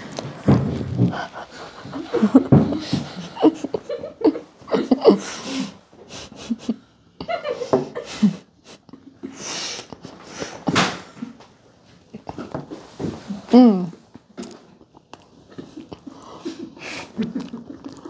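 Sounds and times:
boys giggling and snorting: 1.0 - 8.9.

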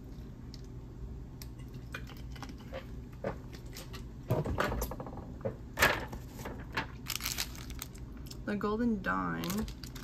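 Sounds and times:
small packages handled on table: 6.3 - 8.0.

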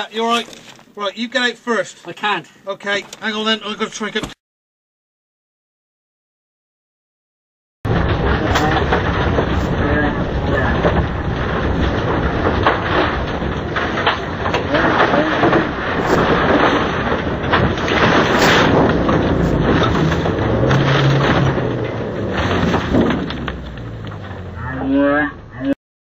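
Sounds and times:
windscreen smashing: 0.0 - 1.3, 7.9 - 24.7
car crashing and scraping: 0.0 - 1.5, 7.9 - 25.6
gravel noise under tyres: 0.0 - 2.2, 7.9 - 25.8
loud car engine: 16.0 - 24.8.

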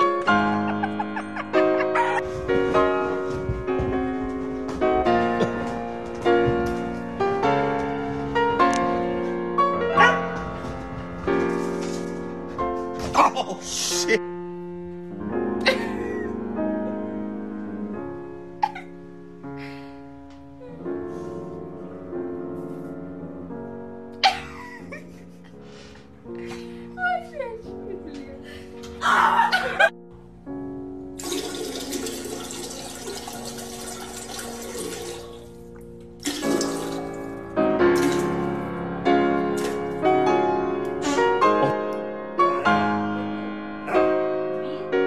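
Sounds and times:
piano music: 0.0 - 45.0.

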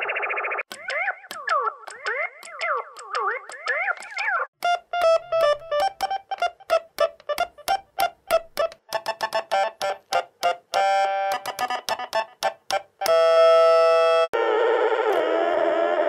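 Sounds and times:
pocket synthesizer short notes: 4.6 - 14.3.

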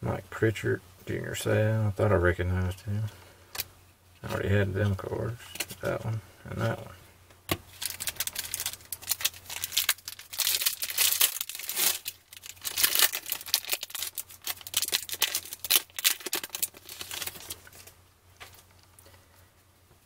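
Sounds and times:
foil wrapper tearing and crinkling: 7.7 - 17.9.

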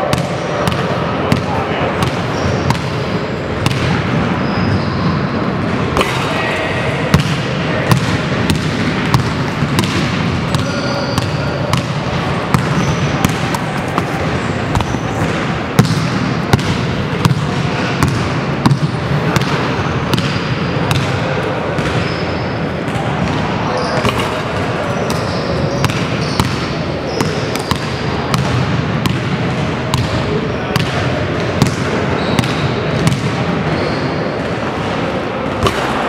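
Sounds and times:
steady background noise: 0.0 - 36.0
sneaker squeaks: 2.0 - 7.2, 9.1 - 16.1, 21.7 - 28.4, 31.6 - 35.0
basketballs bouncing on hardwood: 7.1 - 21.1, 31.6 - 33.3.

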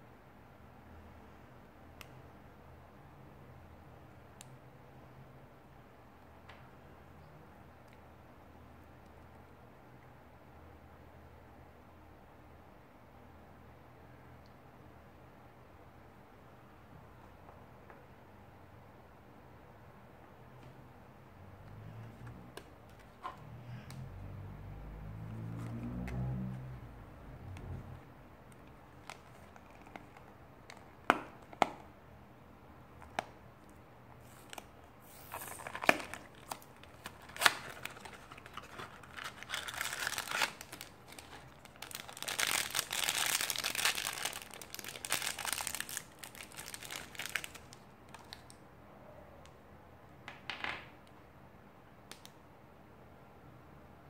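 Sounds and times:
packaging crinkling and tearing: 34.2 - 48.5.

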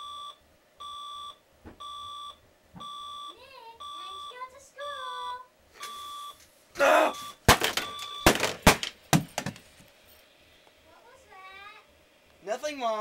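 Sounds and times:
alarm clock beeping: 0.0 - 4.4, 7.1 - 8.3.

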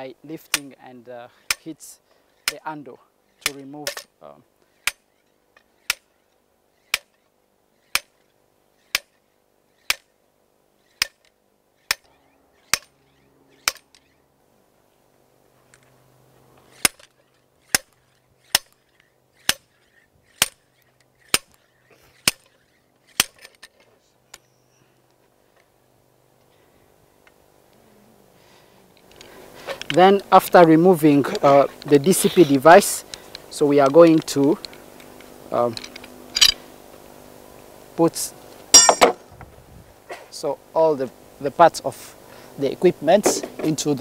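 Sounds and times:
metal hammer clanking: 38.7 - 39.2.

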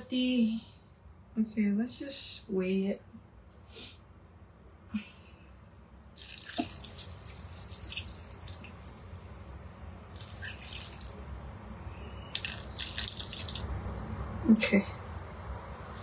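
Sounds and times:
water pouring into metal bowl: 6.2 - 11.2, 12.3 - 13.7.

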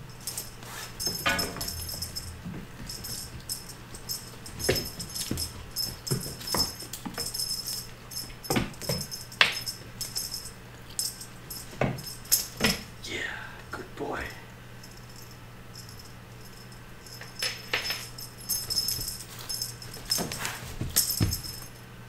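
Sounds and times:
small bell jingling: 0.0 - 13.0, 14.8 - 21.8.

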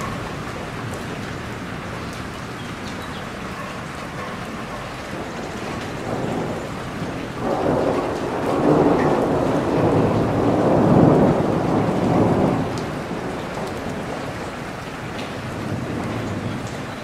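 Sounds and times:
rain pouring: 0.0 - 17.0
thunder rolling: 5.0 - 14.7.

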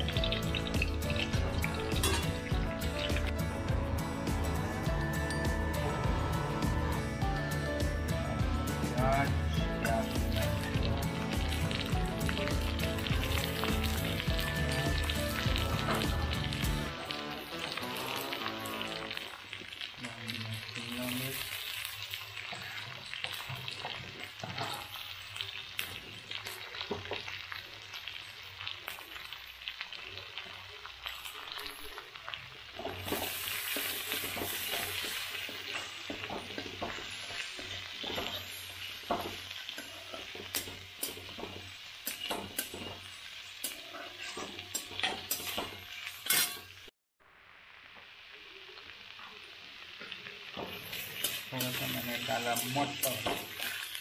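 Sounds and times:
vegetables sizzling in oil: 0.0 - 54.0
metal spatula scraping and clinking: 0.3 - 3.2, 32.8 - 41.4, 42.0 - 46.8, 50.6 - 54.0.

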